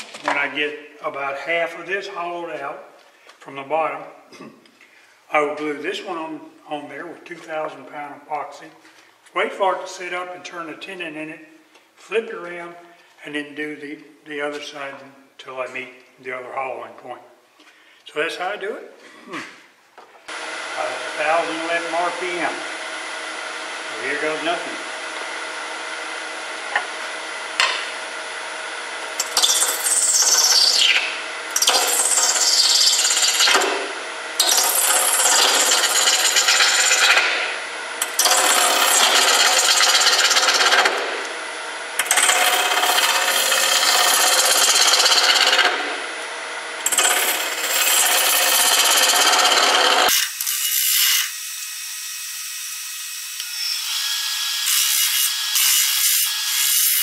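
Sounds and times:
wood lathe running: 20.3s - 51.3s, 53.4s - 57.0s
cutter scraping wood: 20.4s - 41.4s, 42.0s - 51.2s.

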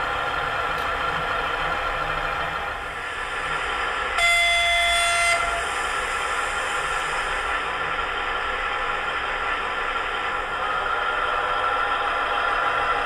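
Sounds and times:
locomotive horn blast: 4.2s - 5.8s.

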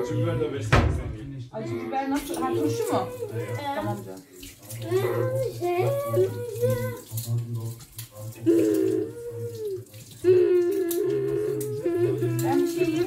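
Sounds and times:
tap running into sink: 0.7s - 1.3s.

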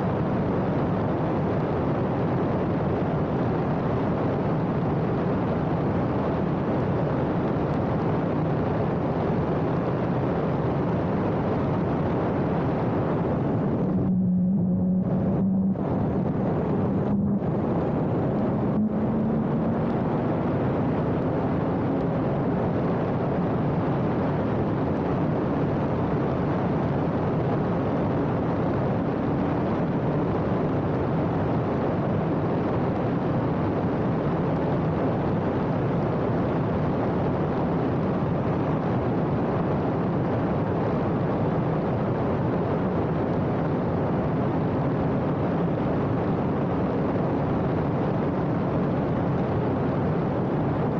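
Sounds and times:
wind and road rush: 0.0s - 50.9s
race car engine running hard: 11.5s - 33.2s.

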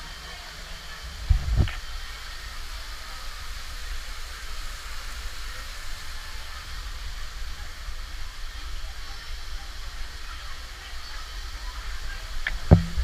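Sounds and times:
steady hiss: 0.0s - 13.0s
wind buffeting microphone: 1.3s - 1.8s
sharp thumps: 12.5s - 13.0s.

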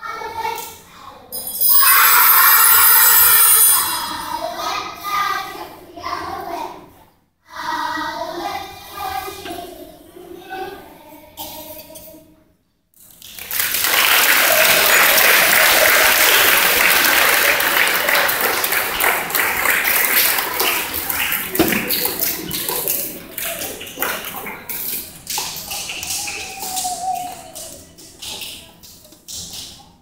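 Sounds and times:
audience applauding: 13.2s - 28.0s.

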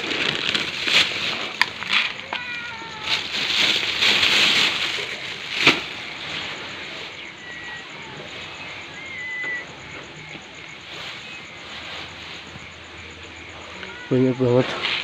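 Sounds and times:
kittens mewing: 1.1s - 11.1s, 12.6s - 15.0s.

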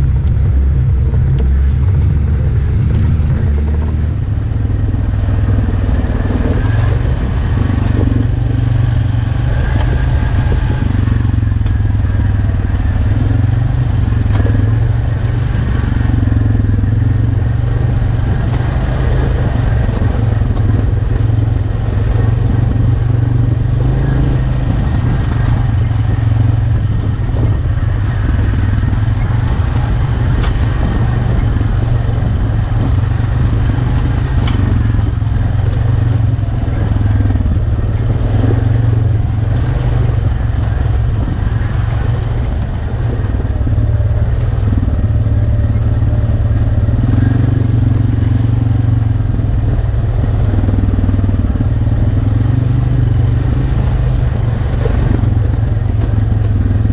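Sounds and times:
atv engine running: 0.0s - 56.9s.

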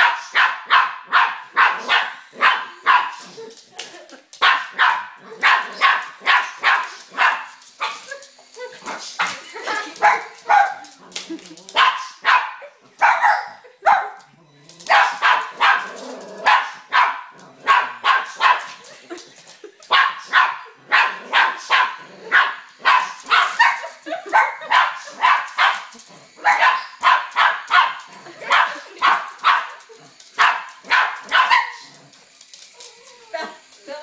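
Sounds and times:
small dog barking: 0.0s - 3.2s, 4.4s - 8.2s, 10.0s - 10.9s, 11.8s - 14.3s, 14.9s - 18.8s, 19.9s - 29.8s, 30.4s - 31.9s.

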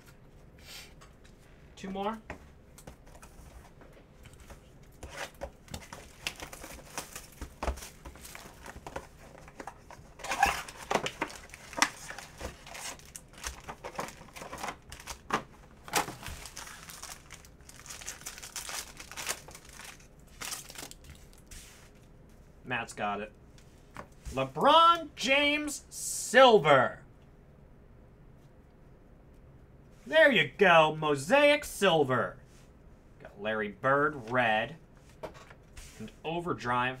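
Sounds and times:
packaging crinkling and tearing: 5.1s - 21.5s
foil pack ripping: 15.9s - 21.3s.

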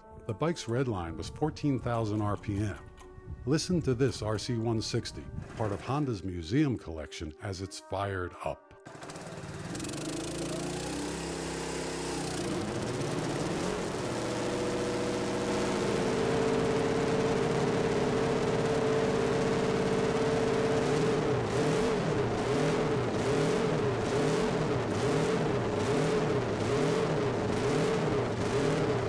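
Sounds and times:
motorcycle engine revving: 8.9s - 29.0s.

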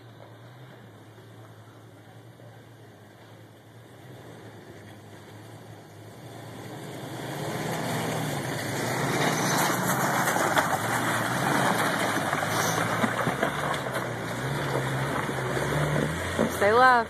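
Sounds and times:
off-road vehicle engine: 0.0s - 17.0s
tyres crunching over rock: 9.0s - 16.8s.

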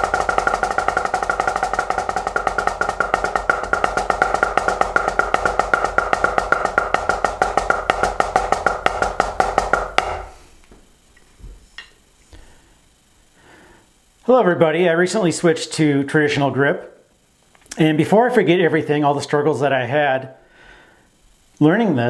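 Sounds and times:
drumsticks tapping practice pad: 0.0s - 10.8s.

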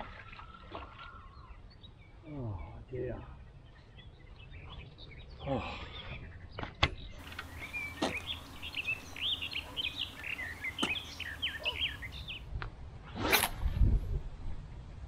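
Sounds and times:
songbird singing: 0.4s - 12.5s
rustle: 7.2s - 15.0s.

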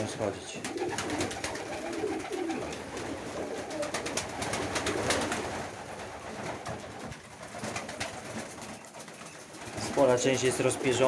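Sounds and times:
pigeons pecking grain clicks: 0.6s - 5.7s
pigeons cooing: 0.6s - 6.4s, 7.6s - 11.0s.

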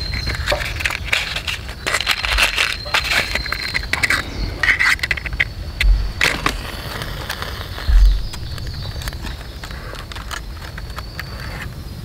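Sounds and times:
kindling crackling and snapping: 0.0s - 12.0s
match striking: 5.0s - 11.7s.

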